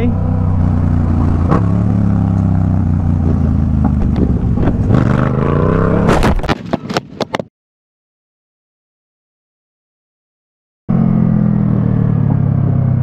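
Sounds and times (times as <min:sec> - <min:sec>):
motorcycle engine running: 0:00.0 - 0:06.0, 0:10.9 - 0:13.0.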